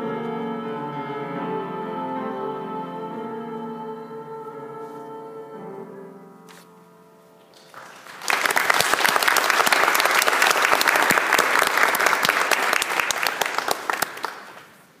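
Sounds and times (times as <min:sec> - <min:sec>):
audience applause: 0:07.7 - 0:14.8.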